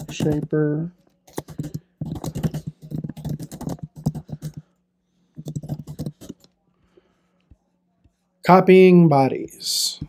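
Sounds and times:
computer keyboard typing: 0.0s - 0.5s, 1.3s - 4.6s, 5.4s - 6.5s.

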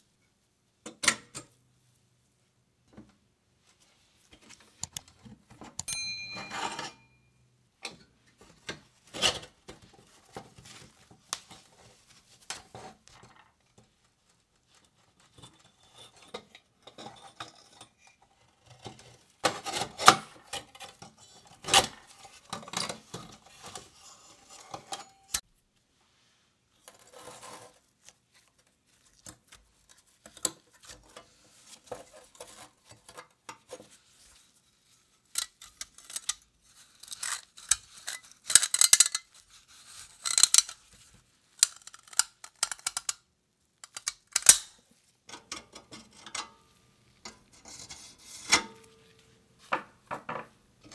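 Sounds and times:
metal parts clinking and rattling: 37.0s - 39.4s.

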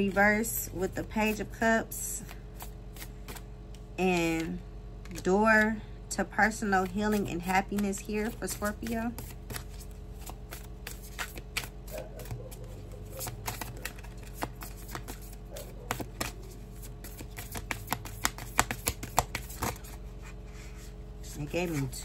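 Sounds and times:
cards being shuffled: 2.2s - 3.5s, 6.8s - 20.0s, 21.3s - 22.0s.

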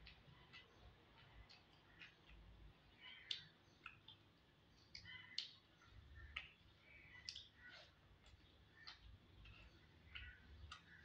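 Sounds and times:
fingers squishing food on a plate: 0.0s - 11.0s
wet chewing smacks: 7.2s - 11.0s.

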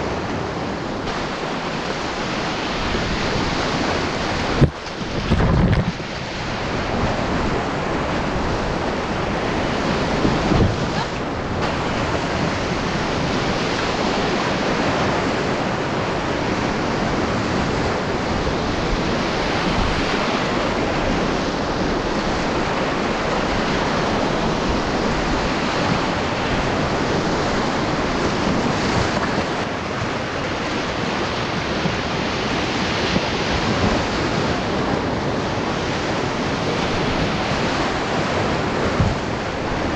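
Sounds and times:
rushing whitewater: 0.0s - 39.9s.

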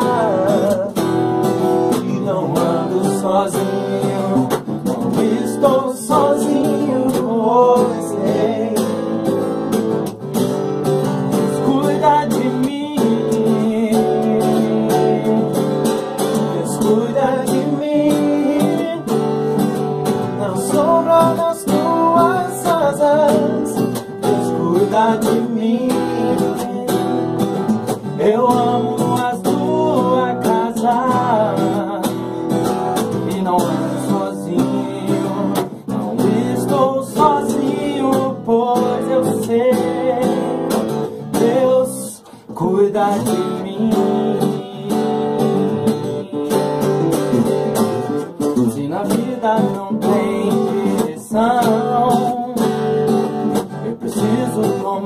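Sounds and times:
man singing gospel song: 0.0s - 9.2s, 11.4s - 15.8s, 16.4s - 19.3s, 20.2s - 46.9s, 48.6s - 53.0s, 53.7s - 55.0s
acoustic bass guitar: 0.0s - 55.0s
acoustic guitar: 0.0s - 55.0s.

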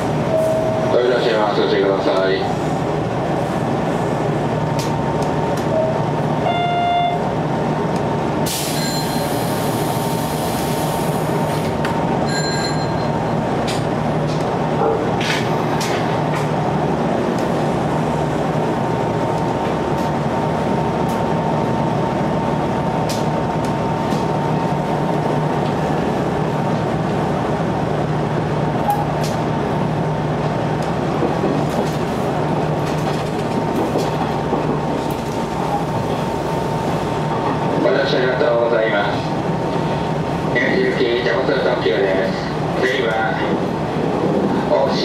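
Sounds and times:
electric train rumble and whine: 0.0s - 45.0s.

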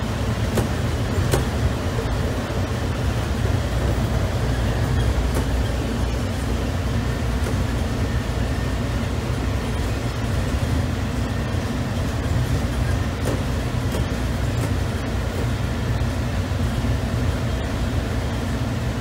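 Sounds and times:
tram rumbling on guideway: 0.0s - 19.0s.

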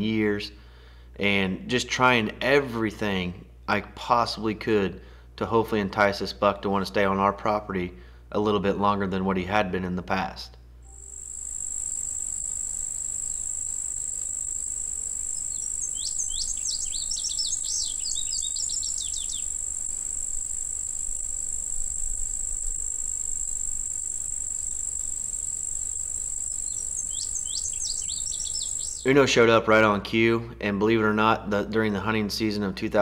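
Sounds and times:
high-pitched insect drone: 10.9s - 29.1s
bird sweeping chirps: 15.2s - 22.6s, 24.6s - 29.1s.

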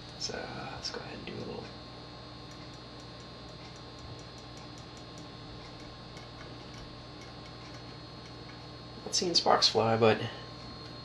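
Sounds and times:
low steady hum: 0.0s - 11.0s
faint ticks: 2.5s - 8.6s.

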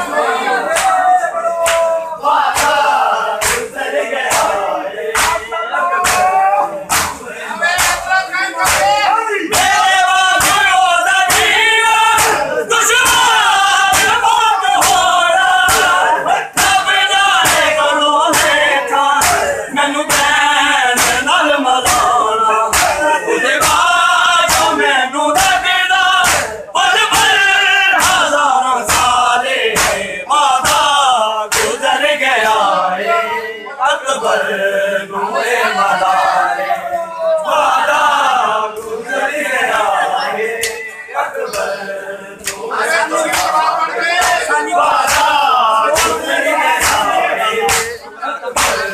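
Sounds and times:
men chanting together: 0.0s - 48.9s
hands slapping bare chests: 0.7s - 1.0s, 1.6s - 1.9s, 2.5s - 5.4s, 6.0s - 7.2s, 7.8s - 14.2s, 14.8s - 16.0s, 16.6s - 18.6s, 19.2s - 19.5s, 21.0s - 24.8s, 25.4s - 27.4s, 28.0s - 28.3s, 28.9s - 30.0s, 30.6s - 31.8s, 45.0s - 46.2s, 46.8s - 47.1s, 47.7s - 48.0s, 48.6s - 48.9s.

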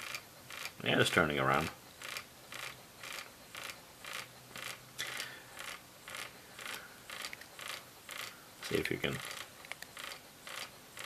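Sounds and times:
robot rattling across wooden desk: 0.0s - 0.8s, 2.0s - 4.8s, 5.6s - 8.4s, 9.0s - 11.0s
vibration motors buzzing: 0.0s - 0.8s, 1.6s - 11.0s.

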